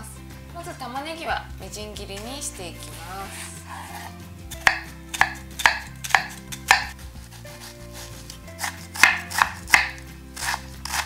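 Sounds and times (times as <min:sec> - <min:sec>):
knife chopping onion on wooden board: 0:03.9 - 0:11.0.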